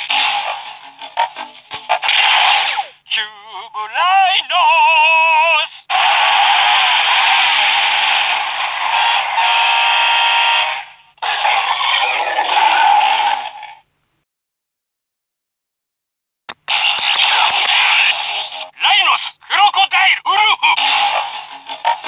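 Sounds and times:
toy electronic sound effects: 0:11.5 - 0:13.2.

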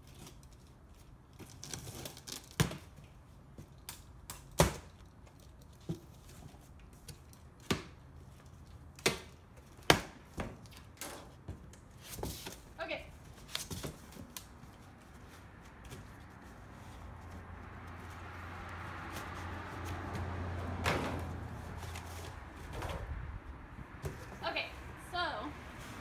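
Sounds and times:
knife cutting cardboard and tape: 0:00.0 - 0:03.0.

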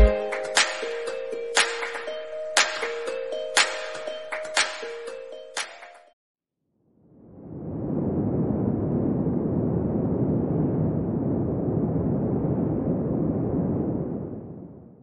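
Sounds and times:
deep noisy rumble: 0:07.1 - 0:14.9.

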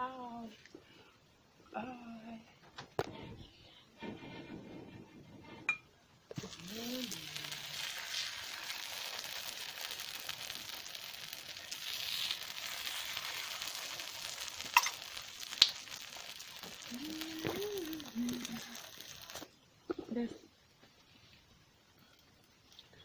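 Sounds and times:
omelette sizzling in a pan: 0:06.3 - 0:19.6
spoon scraping egg: 0:06.4 - 0:19.5.

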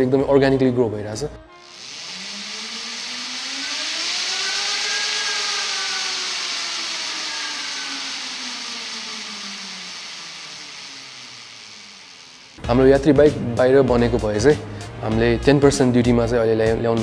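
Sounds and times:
electric motor whining: 0:01.6 - 0:12.6
steady hiss: 0:01.6 - 0:12.6.

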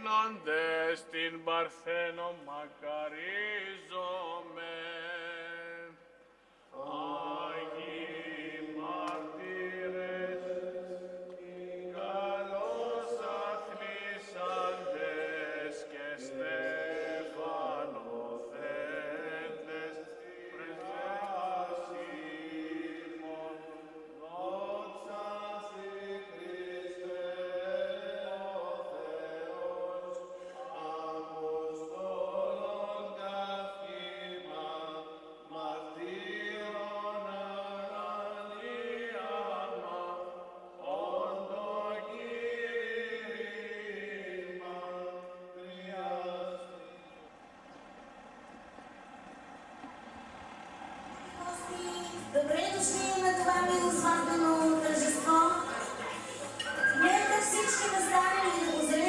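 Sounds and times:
men chanting a hymn: 0:00.0 - 0:06.1, 0:06.7 - 0:48.2.

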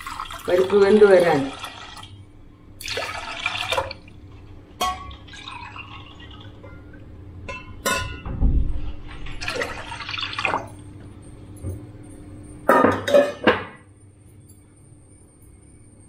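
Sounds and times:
water pouring into pot: 0:00.0 - 0:02.2, 0:02.8 - 0:04.3, 0:05.0 - 0:07.0, 0:09.4 - 0:10.8.

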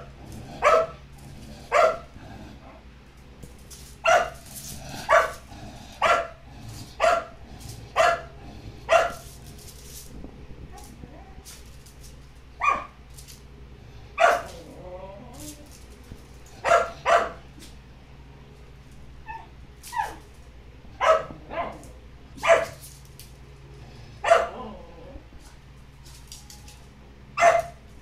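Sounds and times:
small dogs barking: 0:00.0 - 0:02.8, 0:04.0 - 0:09.3, 0:12.6 - 0:13.0, 0:14.2 - 0:14.8, 0:16.5 - 0:17.6, 0:19.2 - 0:20.2, 0:20.9 - 0:22.8, 0:24.2 - 0:25.0, 0:27.4 - 0:27.9.

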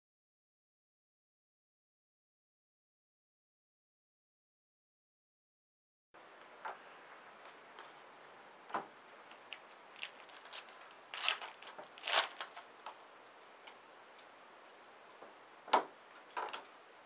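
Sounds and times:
wrapper crinkling: 0:09.3 - 0:12.9.

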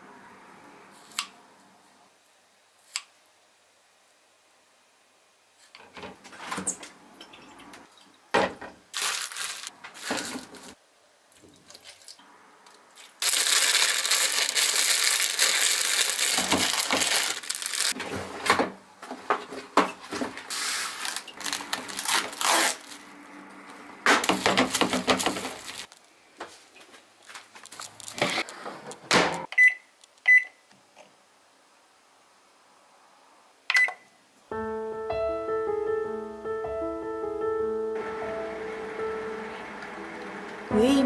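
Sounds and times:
plastic packaging crinkling: 0:08.9 - 0:10.8, 0:13.0 - 0:18.0, 0:20.3 - 0:23.1, 0:24.3 - 0:26.1, 0:27.2 - 0:28.3
cling film pulled and torn: 0:09.0 - 0:10.7, 0:13.0 - 0:18.0, 0:20.5 - 0:23.0.

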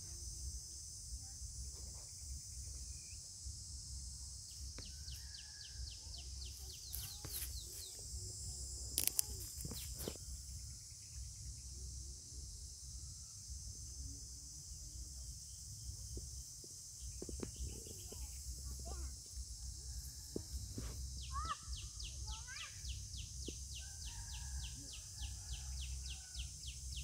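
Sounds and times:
crickets hissing: 0:00.0 - 0:27.0
sharp crackles: 0:08.9 - 0:10.2.

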